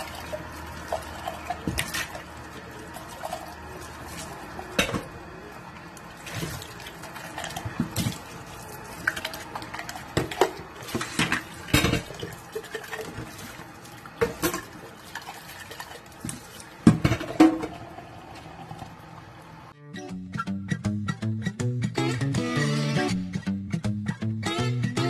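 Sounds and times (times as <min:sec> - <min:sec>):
plastic cups clattering: 0:09.0 - 0:13.6.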